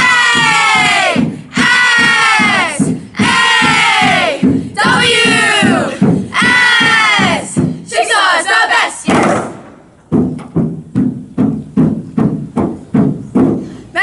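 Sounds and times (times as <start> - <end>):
girls yelling a cheer: 0.0 - 9.1
thuds inside a canoe: 9.1 - 13.6.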